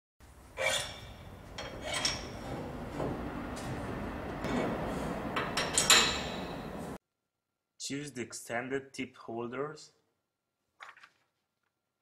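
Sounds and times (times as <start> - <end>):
low workshop noise: 0.2 - 7.0
steel tools clinking and scraping: 0.6 - 2.8, 4.4 - 6.9.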